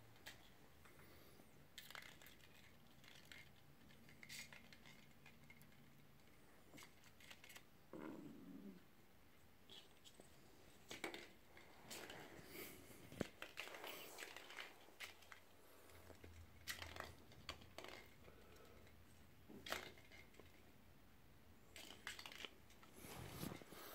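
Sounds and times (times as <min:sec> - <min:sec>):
clicks and skitters on stone floor: 0:01.7 - 0:07.7, 0:10.8 - 0:19.0.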